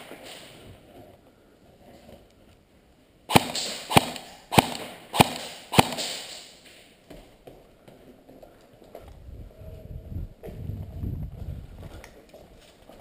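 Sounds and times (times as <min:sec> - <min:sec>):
airsoft gun single shots: 0:03.3 - 0:06.6.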